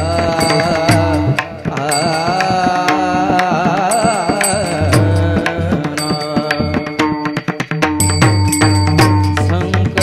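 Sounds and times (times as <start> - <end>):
hand cymbals ringing: 0.0 - 3.0, 3.9 - 9.6
person singing long wavering notes: 0.0 - 7.2.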